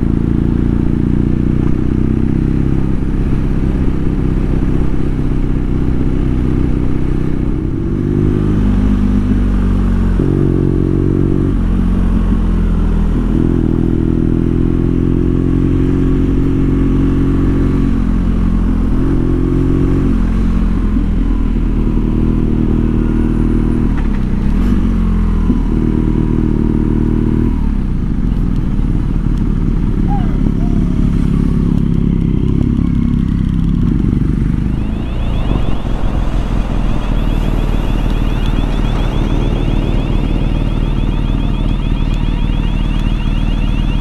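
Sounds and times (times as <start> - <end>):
motorcycle engine revving: 21.8 - 44.0
low rumble: 33.6 - 44.0.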